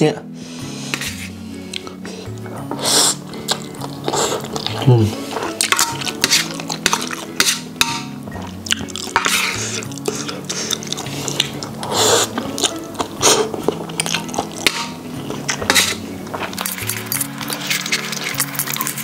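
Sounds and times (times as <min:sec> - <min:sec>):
background music: 0:00.0 - 0:19.0
noodle slurp: 0:02.7 - 0:07.7, 0:08.7 - 0:14.7.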